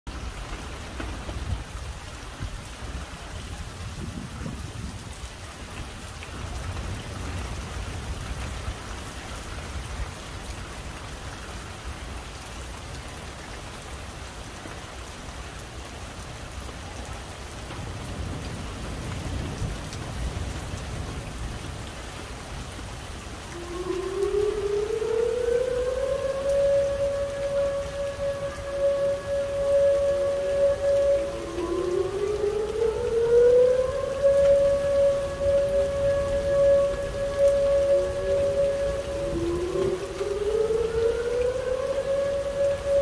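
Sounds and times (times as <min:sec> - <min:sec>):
heavy rain: 0:00.1 - 0:43.0
warning siren winding up: 0:23.6 - 0:43.0.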